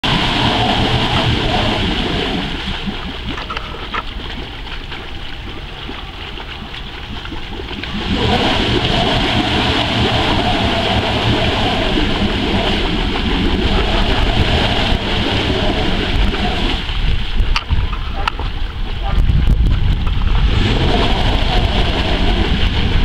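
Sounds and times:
engine revving under load: 0.0 - 2.6, 7.8 - 16.9, 20.3 - 23.0
wheel spinning in water: 0.0 - 23.0.

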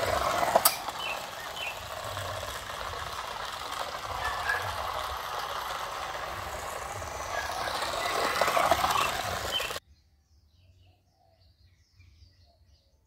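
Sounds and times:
toy airplane motor whirring: 0.0 - 9.8.

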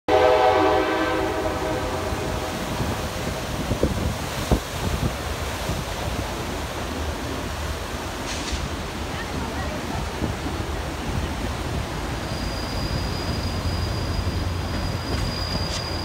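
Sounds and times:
locomotive horn: 0.1 - 2.7
river water: 0.1 - 16.0
train rumbling along track: 0.1 - 16.0.

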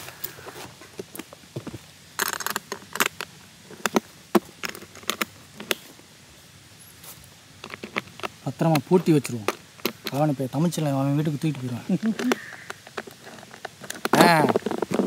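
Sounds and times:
case lid rustle: 12.0 - 15.0.

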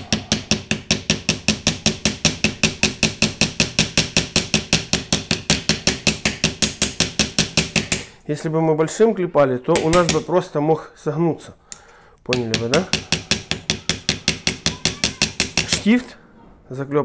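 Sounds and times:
small hammer tapping on steel: 12.3 - 15.9.

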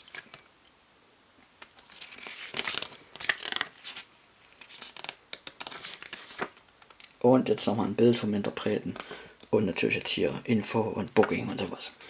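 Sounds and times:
booklet pages turning: 0.0 - 0.5, 1.6 - 7.0.

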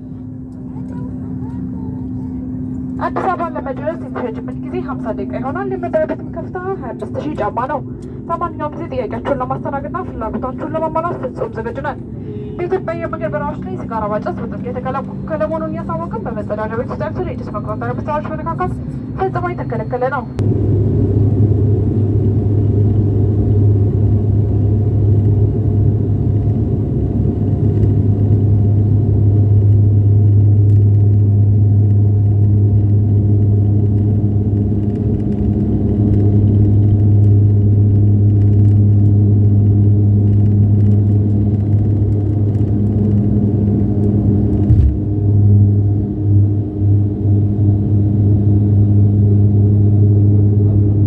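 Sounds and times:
turboprop engines droning: 0.0 - 51.0.

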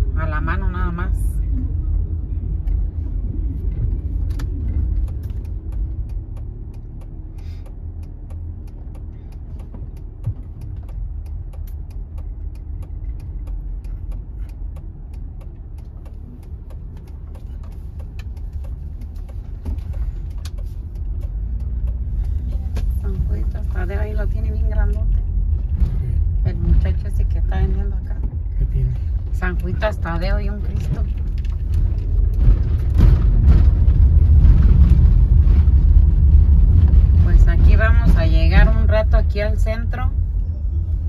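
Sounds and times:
car engine and road rumble: 0.0 - 41.0
light ticks: 3.6 - 32.5.

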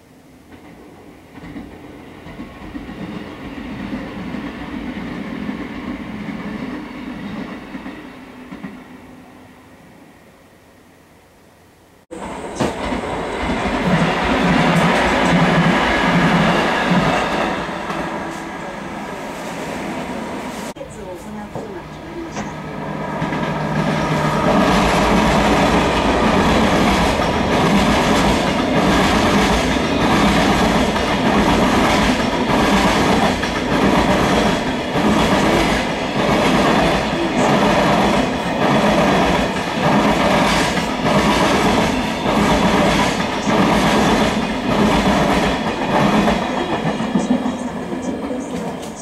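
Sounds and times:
train wheels clacking over rail joints: 23.2 - 47.6.

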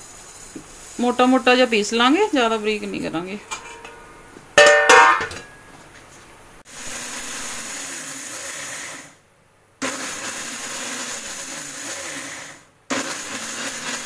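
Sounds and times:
mixer grinder grinding spices: 0.0 - 3.2, 6.7 - 9.2, 9.8 - 14.0.

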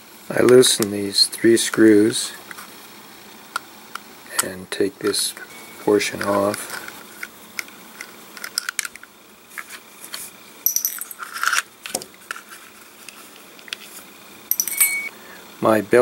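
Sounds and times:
plastic parts clicking: 6.2 - 9.1
metallic clinks: 10.6 - 11.2, 14.5 - 15.1.

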